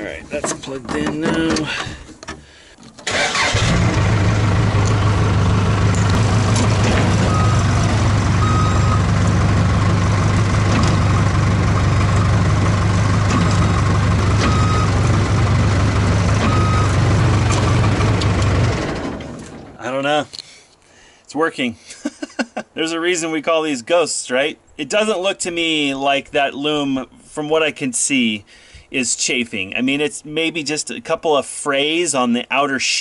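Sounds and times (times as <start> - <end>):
diesel engine starting and running: 0.0 - 19.9.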